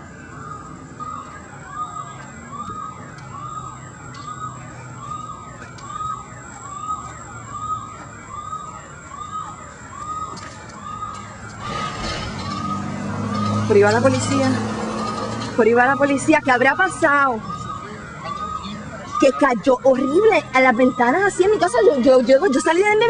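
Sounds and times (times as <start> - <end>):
police siren wailing: 0.0 - 23.0
loud rushing noise: 11.6 - 13.8.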